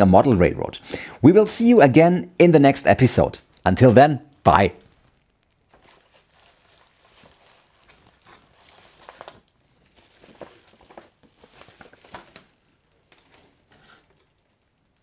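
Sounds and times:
paper packaging crinkling: 0:04.5 - 0:15.0.

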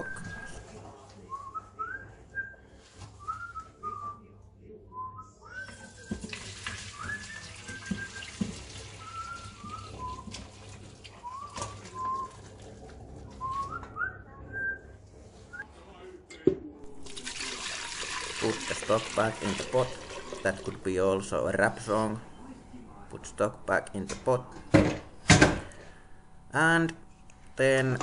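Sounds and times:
person whistling a tune: 0:00.0 - 0:00.6, 0:06.9 - 0:08.3, 0:09.0 - 0:10.3, 0:11.2 - 0:12.3, 0:13.4 - 0:14.8
liquid pouring through strainer: 0:17.0 - 0:20.9.

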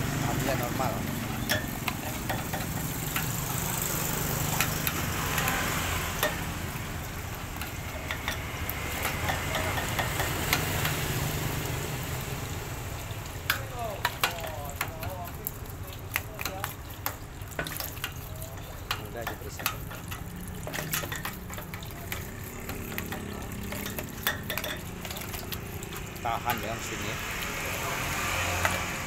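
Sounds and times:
water splashing: 0:00.0 - 0:29.0
sharp clicks and knocks: 0:01.4 - 0:03.7, 0:07.5 - 0:11.1, 0:13.4 - 0:26.7.

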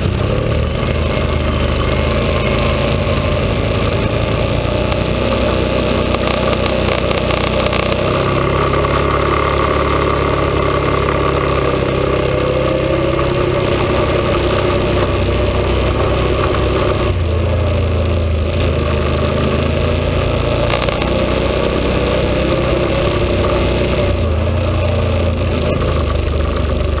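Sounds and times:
atv engine running: 0:00.0 - 0:27.0.

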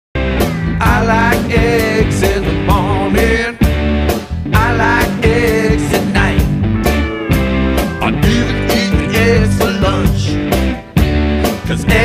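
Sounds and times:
rock song with guitar: 0:00.2 - 0:12.0
person singing: 0:00.8 - 0:03.6, 0:04.5 - 0:10.4, 0:11.4 - 0:12.0.

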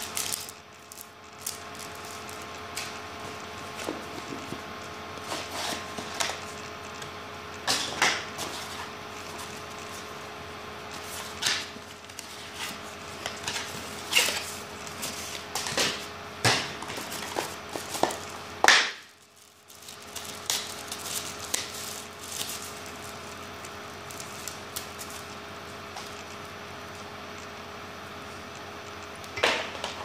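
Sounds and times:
plastic wrap crinkling: 0:00.0 - 0:29.4
faint steady hum: 0:00.0 - 0:30.0
cardboard scraping and tapping: 0:02.8 - 0:06.4.

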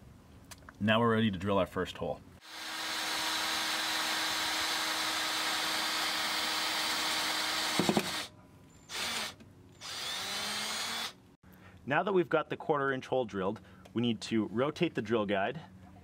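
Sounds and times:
cordless drill boring through metal: 0:02.4 - 0:08.3, 0:08.9 - 0:11.2.

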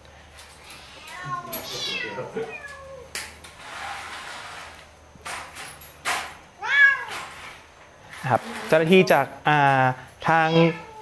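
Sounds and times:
cats meowing: 0:00.6 - 0:03.4, 0:06.6 - 0:07.5, 0:10.2 - 0:11.0.

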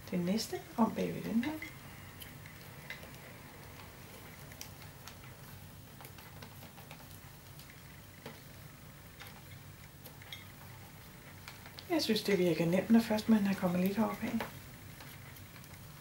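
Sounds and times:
low steady hum: 0:00.0 - 0:16.0
paper tubes ticking and tapping: 0:00.0 - 0:16.0.

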